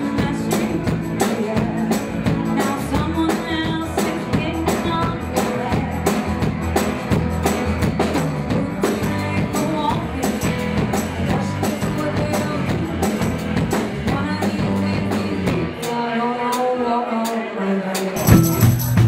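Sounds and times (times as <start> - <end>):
woman singing: 0.0 - 6.5, 8.0 - 19.0
drum kit beat: 0.0 - 16.0, 18.0 - 19.0
bass guitar: 0.0 - 16.1, 18.1 - 19.0
live band playing: 0.0 - 19.0.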